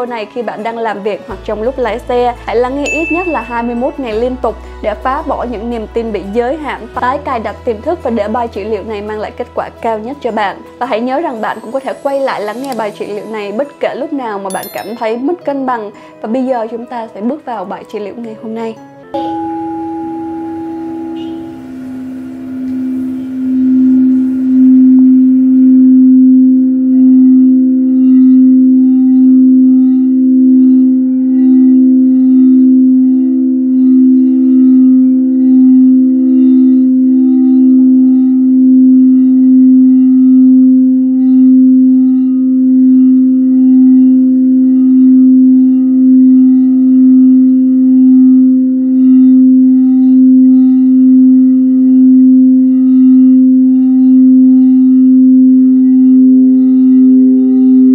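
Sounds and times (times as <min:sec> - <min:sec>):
singing bowl humming: 0:01.3 - 0:18.1, 0:18.8 - 0:57.9.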